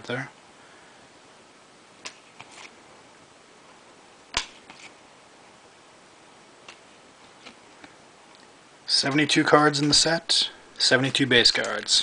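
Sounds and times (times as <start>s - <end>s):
cards clicking and tapping: 11.0s - 12.0s.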